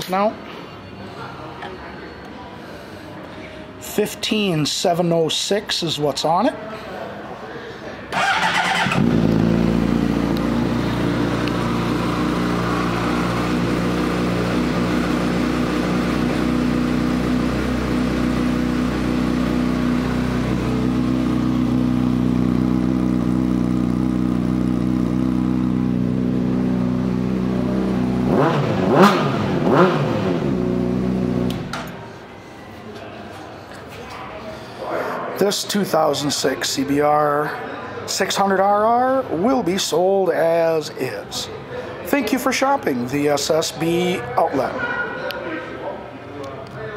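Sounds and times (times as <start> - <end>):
engine revving in quick blips: 8.2 - 12.0, 27.8 - 31.7
motorcycle engine idling: 8.2 - 28.8.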